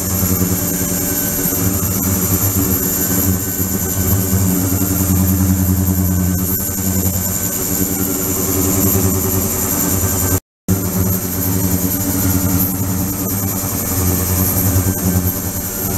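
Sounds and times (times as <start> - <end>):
ultrasonic tank humming and whining: 0.0 - 15.9.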